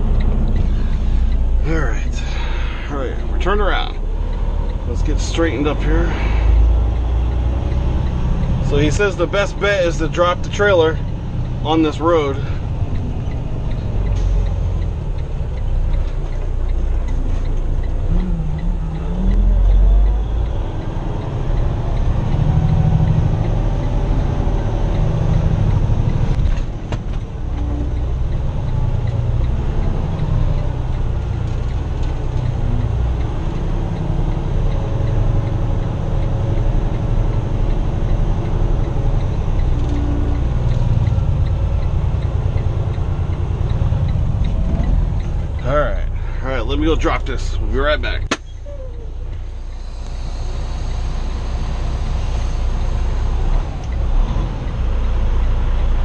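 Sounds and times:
truck diesel engine rumbling: 0:00.0 - 0:56.0.

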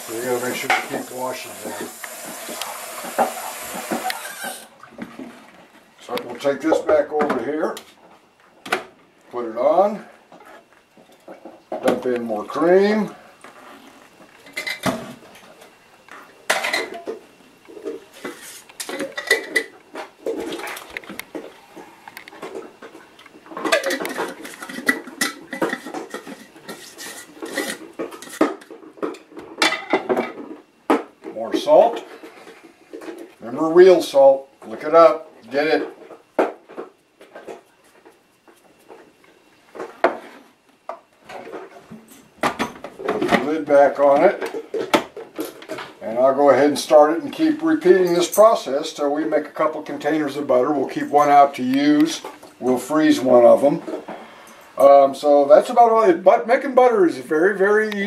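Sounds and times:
dishes and utensils clattering: 0:14.5 - 0:15.1, 0:16.5 - 0:17.2, 0:17.8 - 0:20.8, 0:23.5 - 0:30.5
kitchen items clicking and knocking: 0:23.5 - 0:30.5.

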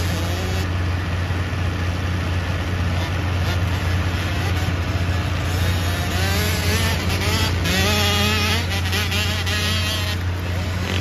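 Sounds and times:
dirt bike engines revving: 0:00.0 - 0:11.0
steady low hum: 0:00.0 - 0:11.0.

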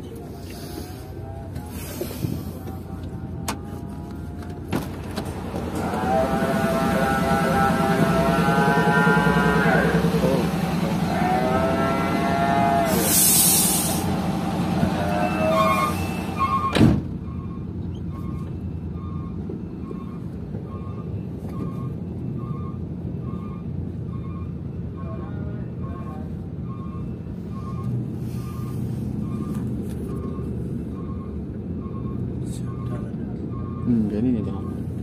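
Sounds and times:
diesel truck engine running: 0:00.0 - 0:35.0
air release hiss: 0:12.9 - 0:14.1.

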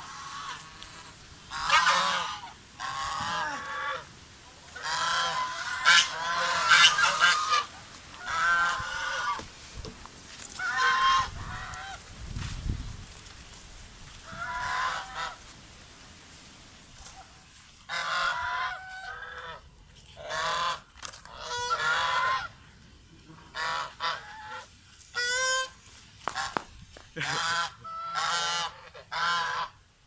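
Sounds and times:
geese honking: 0:00.0 - 0:09.4, 0:10.6 - 0:12.0, 0:14.2 - 0:15.4, 0:17.9 - 0:22.6, 0:23.4 - 0:26.6, 0:27.2 - 0:29.8.

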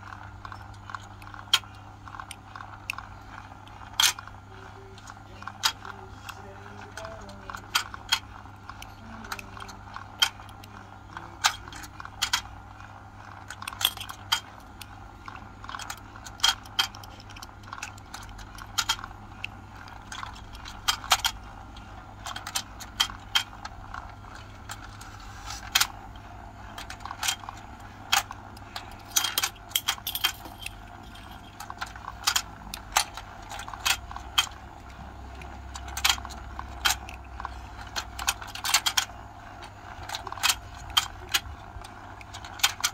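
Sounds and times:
steady low hum: 0:00.0 - 0:42.9
plastic pieces clicking into board: 0:13.4 - 0:21.4, 0:26.7 - 0:42.9.

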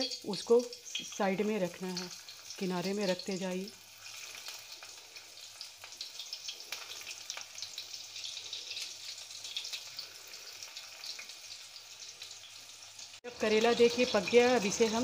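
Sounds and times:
vegetables sizzling in hot oil: 0:00.0 - 0:15.0.

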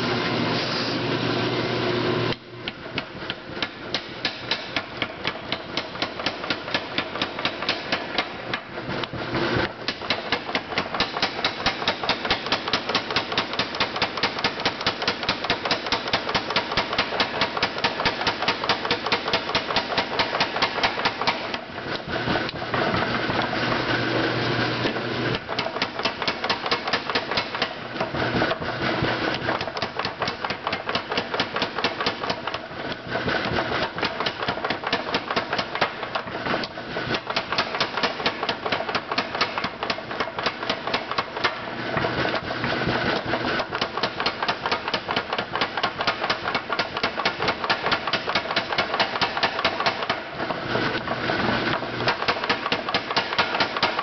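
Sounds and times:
power hammer striking hot steel: 0:03.0 - 0:08.7, 0:09.8 - 0:21.7, 0:25.3 - 0:28.1, 0:29.0 - 0:41.7, 0:43.2 - 0:50.3, 0:52.0 - 0:54.0.

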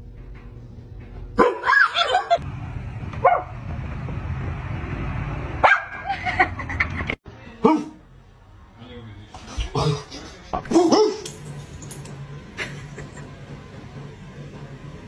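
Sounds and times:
low background hum: 0:00.0 - 0:15.0
dog barking: 0:01.4 - 0:01.9, 0:03.2 - 0:03.5, 0:05.6 - 0:06.0.

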